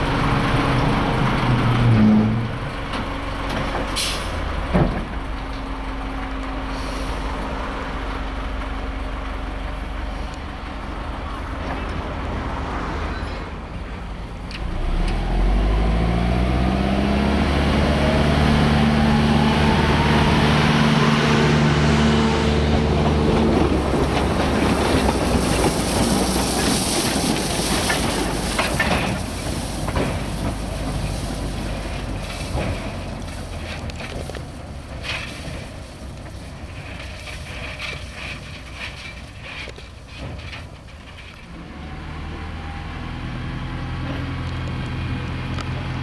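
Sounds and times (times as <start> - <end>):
train rattle and rumble: 0.0 - 15.6, 17.6 - 41.9
diesel locomotive engine revving: 0.0 - 46.0.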